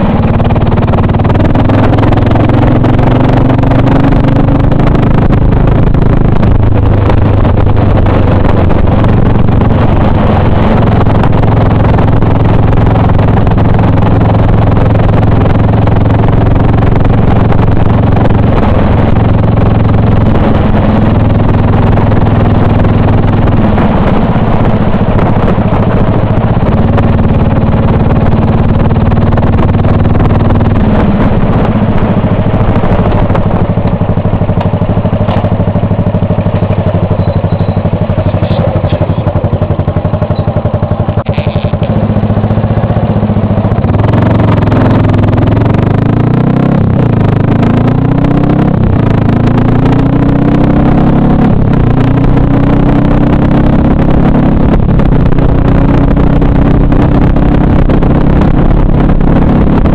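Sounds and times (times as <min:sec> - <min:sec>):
motorcycle engine revving: 0:00.0 - 0:59.9.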